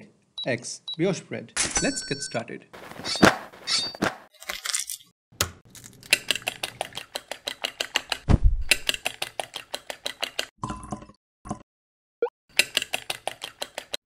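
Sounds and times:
fork beating eggs in glass dish: 6.0 - 10.5, 12.6 - 14.0.

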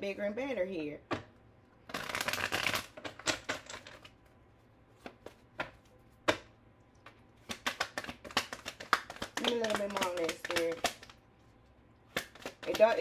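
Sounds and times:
cards being shuffled: 1.9 - 4.1, 4.9 - 5.9, 7.4 - 11.2, 12.1 - 13.0.

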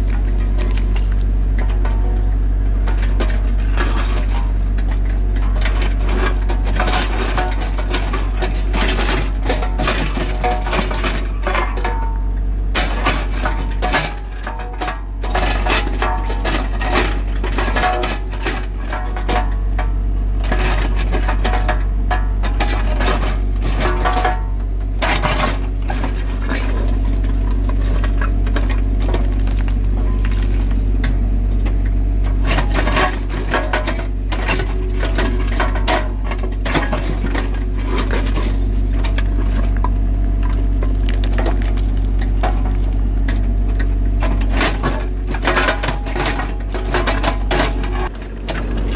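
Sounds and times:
steel bucket scraping rock: 0.0 - 12.2, 12.8 - 19.7, 20.4 - 31.0, 32.3 - 43.4
excavator diesel engine humming: 0.0 - 48.9
stones clinking and knocking: 29.2 - 30.8, 40.9 - 43.0.

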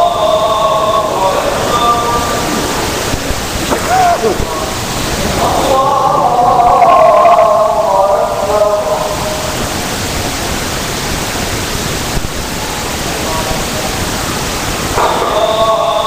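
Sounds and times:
man's voice: 0.0 - 9.5
steady hiss: 0.0 - 16.0.

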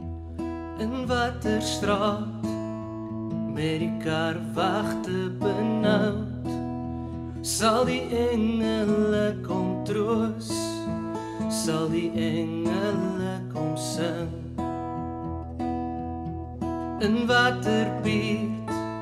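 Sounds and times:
acoustic guitar strumming: 0.0 - 19.0
man singing: 0.8 - 2.6, 3.5 - 6.6, 7.4 - 14.6, 17.0 - 19.0.

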